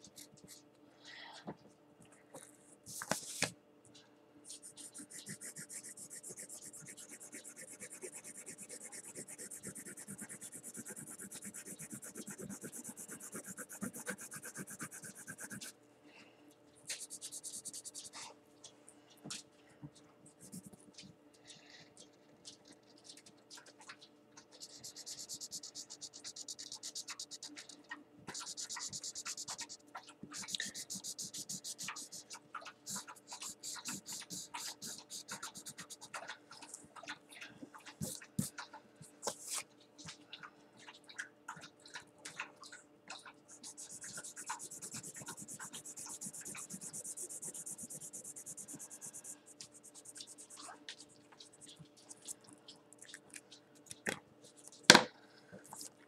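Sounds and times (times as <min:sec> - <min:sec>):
faint steady hum: 0:00.0 - 0:56.0
marker scribbling on paper: 0:04.5 - 0:15.7, 0:16.9 - 0:18.2, 0:20.4 - 0:20.8, 0:24.6 - 0:27.6, 0:28.3 - 0:29.8, 0:30.4 - 0:36.1, 0:43.5 - 0:50.8.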